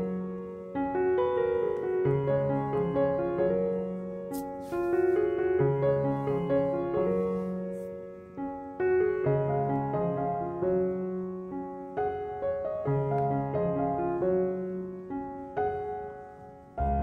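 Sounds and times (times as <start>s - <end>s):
slow piano music: 0.0s - 17.0s.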